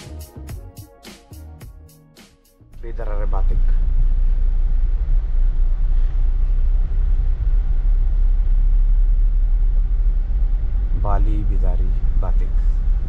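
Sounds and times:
car road and engine rumble: 2.8 - 13.0.

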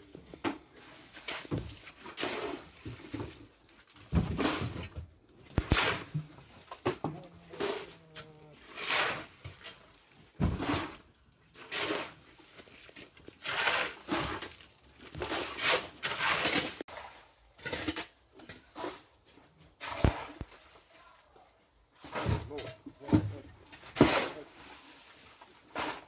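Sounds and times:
scraping and rattling on concrete: 4.2 - 16.8, 17.6 - 19.2.

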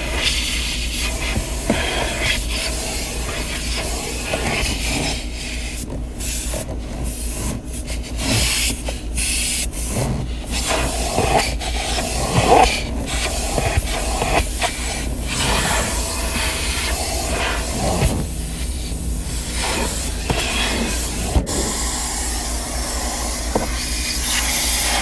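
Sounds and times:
vacuum hose sucking air: 0.0 - 25.0
low hum: 10.3 - 25.0.

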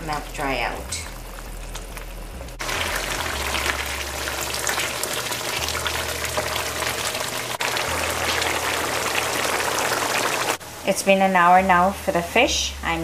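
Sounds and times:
leaves bubbling in frying pan: 0.0 - 10.6.

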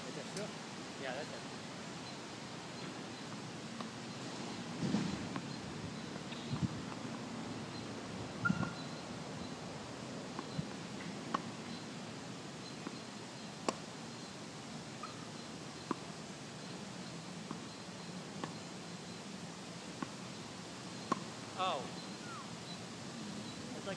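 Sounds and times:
bird chirps: 7.7 - 9.6, 20.9 - 23.9.

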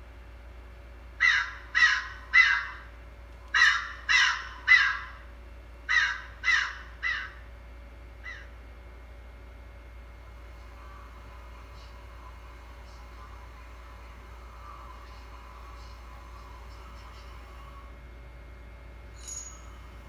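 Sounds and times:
crow cawing: 1.2 - 2.9, 3.5 - 5.2, 5.9 - 7.4, 8.2 - 8.5.

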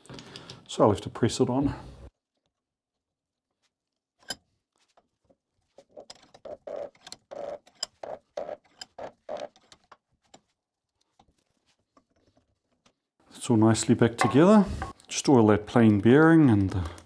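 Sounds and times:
vise creaking and clicking: 5.7 - 10.5.

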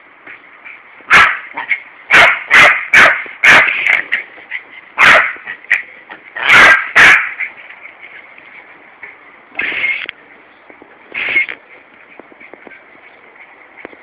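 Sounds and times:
small dog barking: 1.1 - 3.8, 5.0 - 5.4, 6.4 - 7.4.

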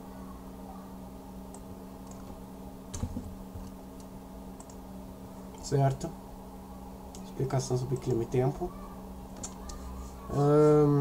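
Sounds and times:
steady low hum: 0.0 - 11.0
computer keyboard and mouse clicks: 1.5 - 2.4, 3.0 - 4.8, 9.4 - 9.8.

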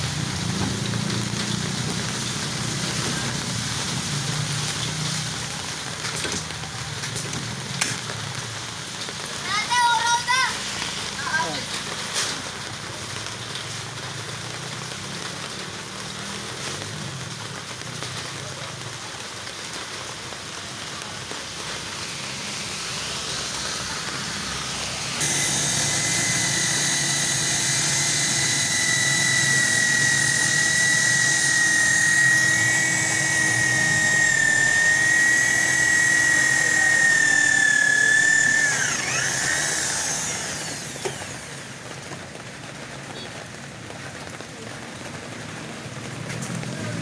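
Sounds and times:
electric drill whining: 23.1 - 42.0.

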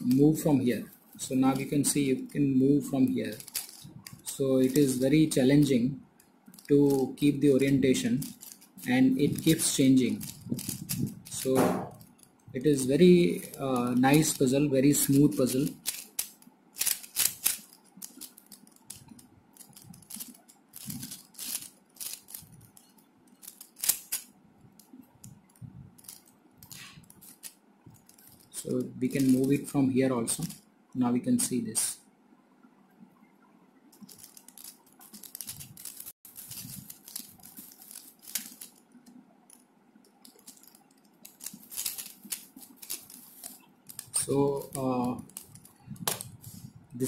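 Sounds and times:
plastic puzzle cube clicking: 3.3 - 4.9, 8.2 - 11.4, 15.0 - 28.4, 34.0 - 39.6, 40.2 - 46.3.

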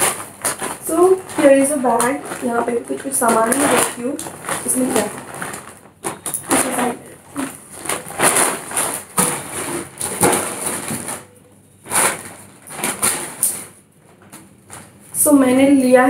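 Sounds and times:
plastic bag rustling and crinkling: 0.0 - 16.0.

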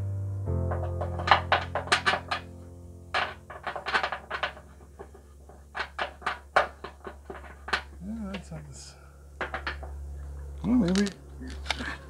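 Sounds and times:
hand tools clicking on metal: 3.2 - 8.6.

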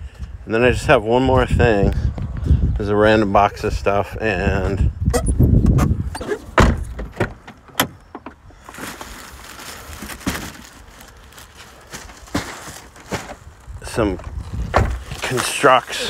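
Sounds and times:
rustling: 6.3 - 16.0
cardboard boxes knocking: 12.2 - 13.4.

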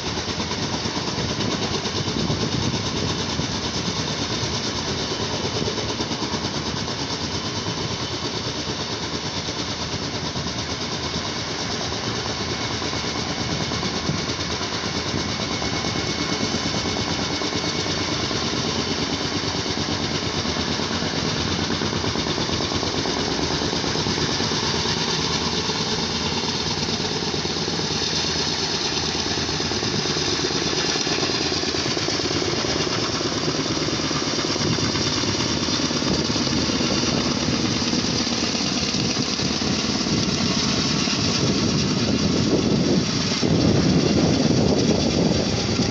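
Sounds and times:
helicopter rotor and engine: 0.0 - 45.9.

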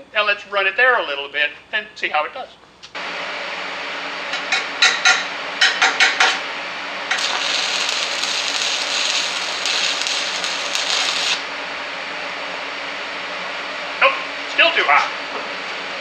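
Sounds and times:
welding arc cracking and hissing: 7.1 - 11.5.

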